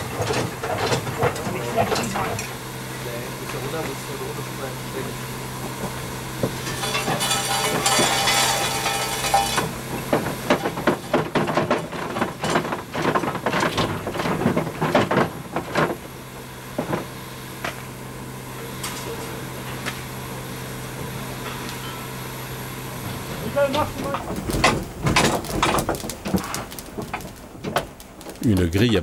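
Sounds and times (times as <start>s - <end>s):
metal clanking and rattling: 0.0s - 2.6s, 5.6s - 16.1s, 23.0s - 29.0s.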